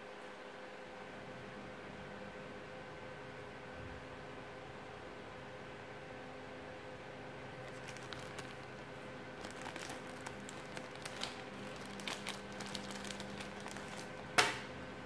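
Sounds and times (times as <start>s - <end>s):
plastic bag crinkling: 7.6s - 14.5s
sharp plastic snap: 14.4s - 14.7s.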